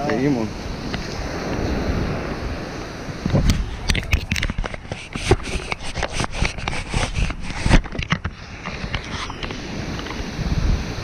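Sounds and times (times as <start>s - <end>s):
microphone handling noise: 3.0s - 10.8s.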